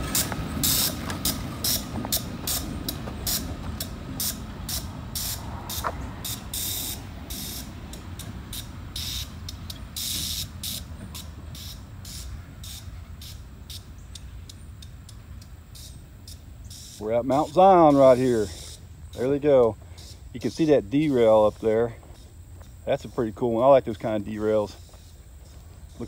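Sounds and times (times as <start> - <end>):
short hissing bursts: 0.0 - 13.9, 15.7 - 22.4
train wheels rumbling on rail: 0.0 - 26.0.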